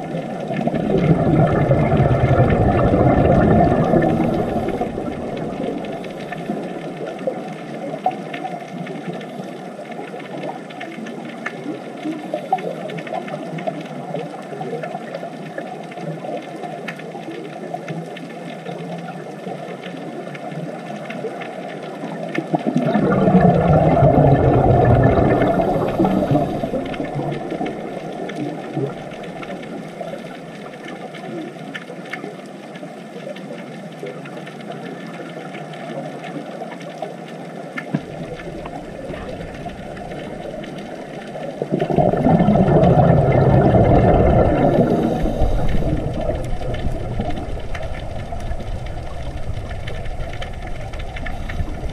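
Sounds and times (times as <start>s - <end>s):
regulator exhaling bubbles: 0.0s - 7.4s, 22.5s - 30.4s, 38.0s - 51.9s
low underwater rushing: 0.0s - 16.0s, 20.0s - 32.1s, 33.9s - 51.9s.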